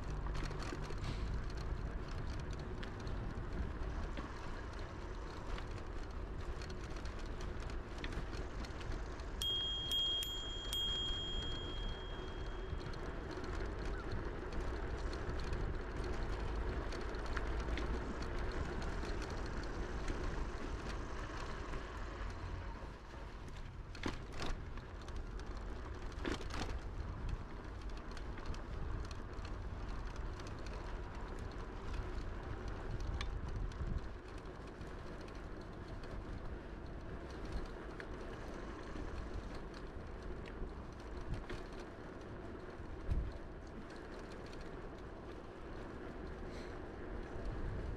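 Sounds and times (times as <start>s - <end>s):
bike tyres rolling on pavement: 0.0s - 47.9s
low rumble of air on microphone: 28.4s - 34.9s, 42.5s - 43.7s.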